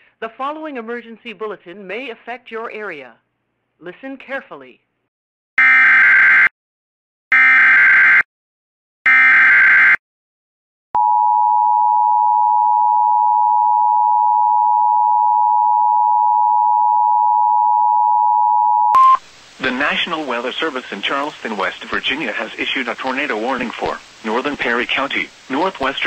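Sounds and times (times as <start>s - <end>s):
two-tone alert signal: 11.0s - 19.2s.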